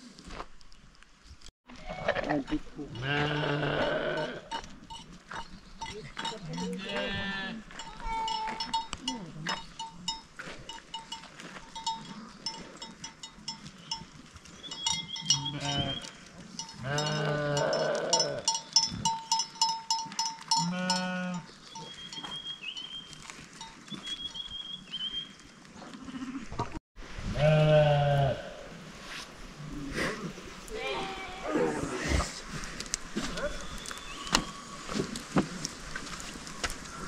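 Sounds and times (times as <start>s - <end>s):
sheep bleating: 1.8s - 4.6s, 6.5s - 8.6s, 15.4s - 16.1s, 16.8s - 18.5s, 27.4s - 28.6s
small bells jingling: 4.2s - 7.1s, 7.7s - 24.0s.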